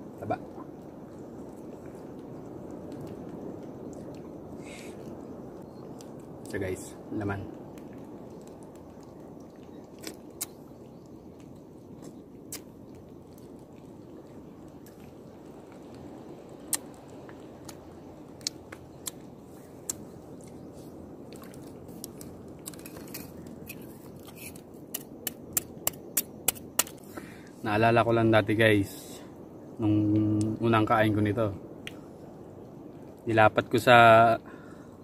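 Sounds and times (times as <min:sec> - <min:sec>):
sea urchin shell cracking: 0:07.8 - 0:10.7, 0:11.4 - 0:13.9, 0:18.4 - 0:20.6, 0:21.3 - 0:27.2.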